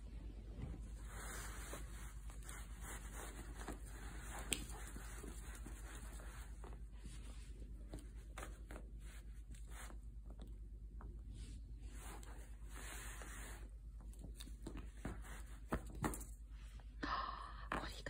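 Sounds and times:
kitten claws scratching fabric: 0:00.9 - 0:06.9.

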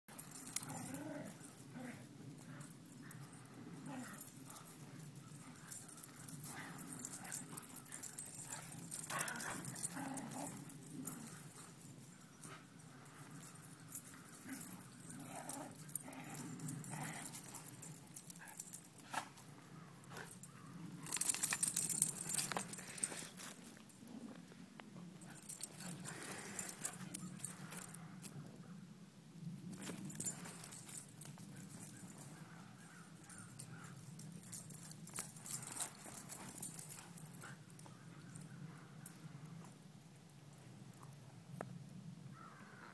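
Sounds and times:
dogs growling: 0:00.2 - 0:11.8, 0:13.1 - 0:19.0, 0:25.2 - 0:28.0.

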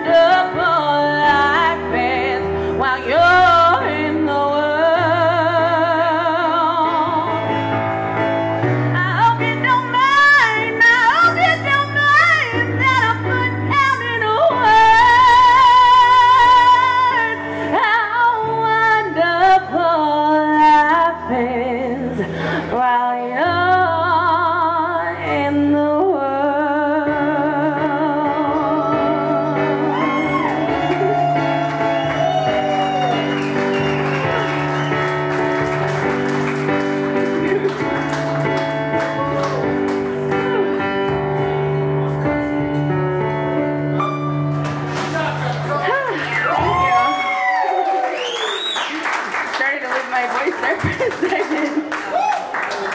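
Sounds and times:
woman singing with vibrato: 0:00.0 - 0:07.4, 0:08.9 - 0:30.4
electronic keyboard sustained notes: 0:26.6 - 0:44.6.

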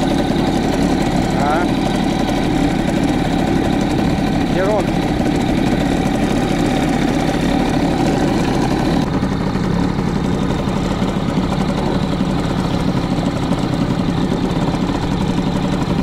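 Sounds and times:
outboard motor humming: 0:00.0 - 0:16.0.

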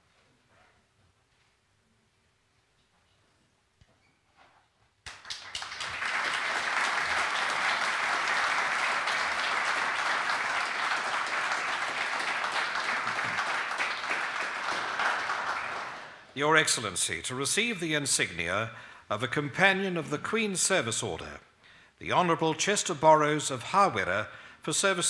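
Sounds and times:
audience applauding: 0:05.1 - 0:16.9.

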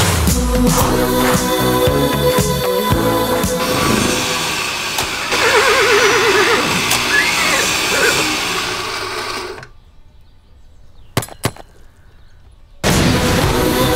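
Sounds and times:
loud machine grinding: 0:03.0 - 0:09.7
warbling squeal: 0:05.3 - 0:08.6.

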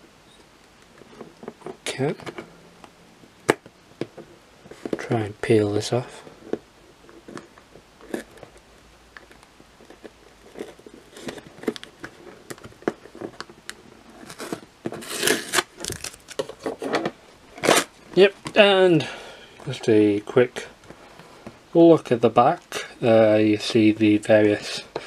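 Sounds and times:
tape tearing and crinkling: 0:14.1 - 0:18.0.

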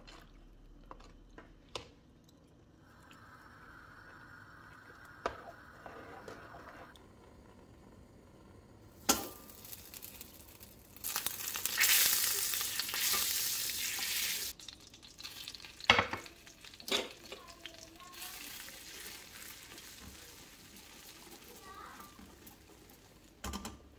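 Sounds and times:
butter sizzling in a pan: 0:08.8 - 0:23.4.

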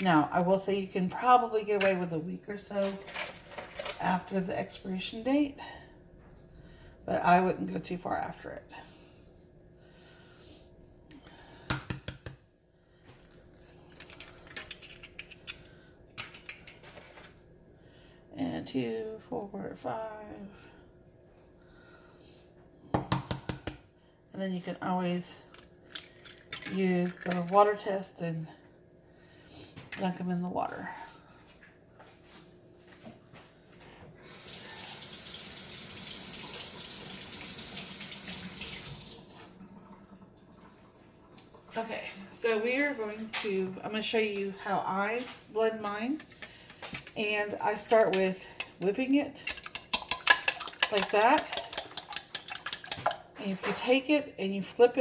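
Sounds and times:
kitchen tap running: 0:34.2 - 0:41.8, 0:49.5 - 0:53.2.

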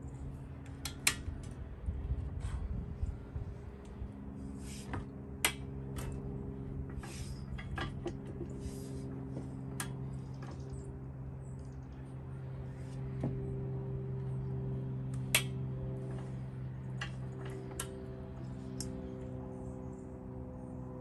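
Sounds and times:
steady low hum: 0:00.0 - 0:21.0
farm jack ratcheting metal clicks: 0:00.6 - 0:01.6.

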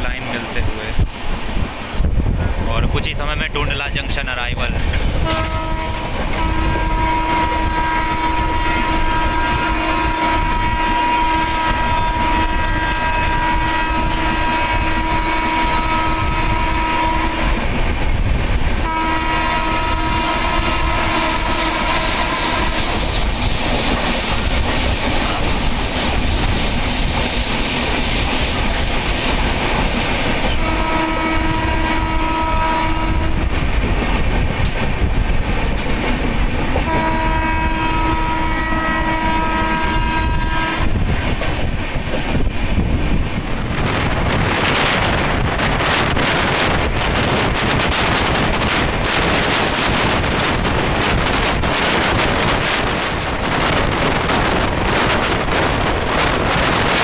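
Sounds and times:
train rumble and wheel clatter: 0:00.0 - 0:57.0
train horn blasts: 0:05.2 - 0:17.6, 0:18.8 - 0:23.0, 0:30.5 - 0:33.6, 0:36.8 - 0:41.2.

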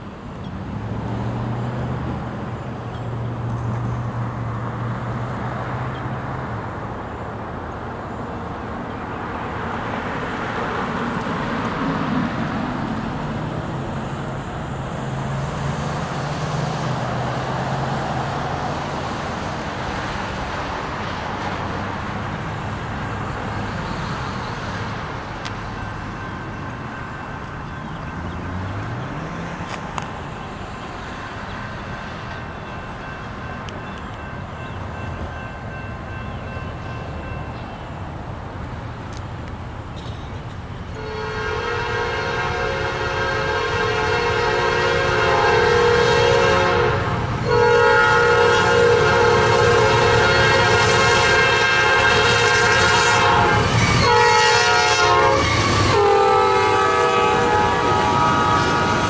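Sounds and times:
vehicles passing on highway: 0:00.0 - 0:59.0
vehicle accelerating: 0:00.4 - 0:02.5.

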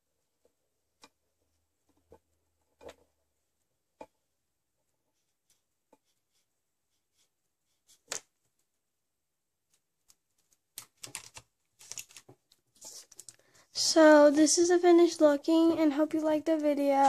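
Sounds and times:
paper rustling: 0:09.7 - 0:13.5.

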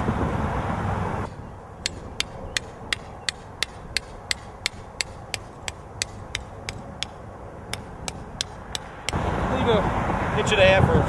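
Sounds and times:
hammer tapping a stake: 0:01.3 - 0:09.2.

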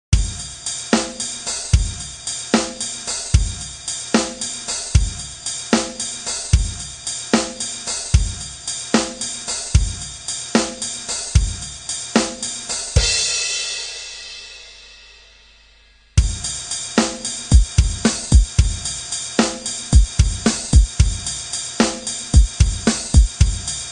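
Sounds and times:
drum kit beat: 0:00.1 - 0:23.9.

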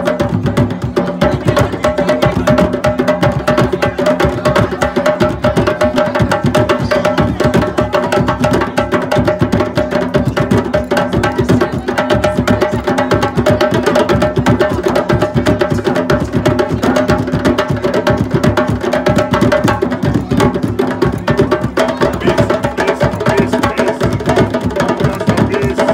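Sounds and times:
hand drums playing fast rhythm: 0:00.0 - 0:25.9.

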